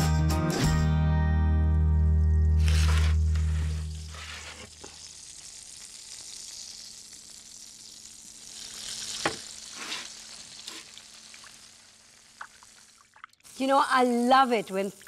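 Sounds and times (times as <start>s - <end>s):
fat sizzling in roasting tray: 2.6s - 15.0s.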